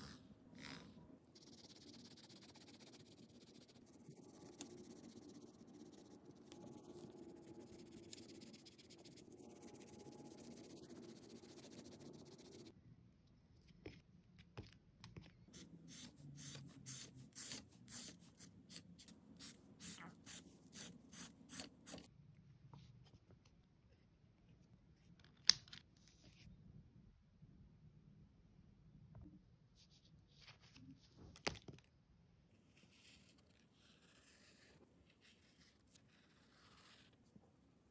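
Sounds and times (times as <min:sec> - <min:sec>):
marker rubbing on paper: 0:00.0 - 0:12.7, 0:15.6 - 0:22.1
scratchy marker strokes: 0:00.0 - 0:12.7, 0:15.5 - 0:22.1, 0:32.8 - 0:37.2.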